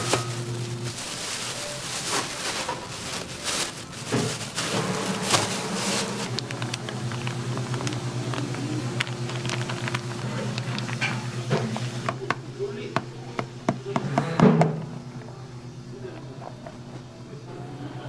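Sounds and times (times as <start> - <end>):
plastic bags crinkling: 0.0 - 12.4
low electrical hum: 0.0 - 18.0.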